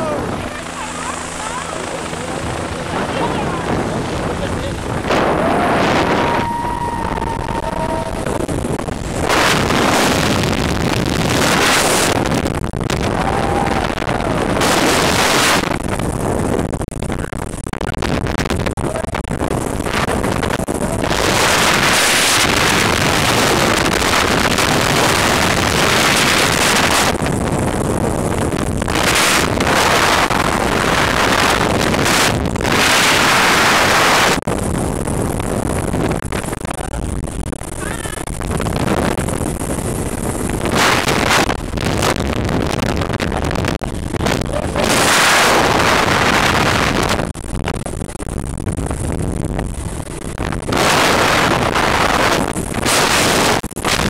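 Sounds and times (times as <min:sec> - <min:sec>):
wind buffeting microphone: 0:00.0 - 0:54.0
helicopter engine and rotor: 0:00.2 - 0:04.8.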